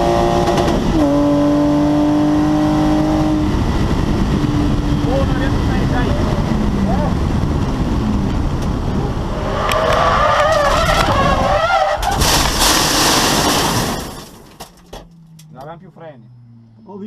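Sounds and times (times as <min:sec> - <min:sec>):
car sliding on dirt: 0:09.2 - 0:14.9.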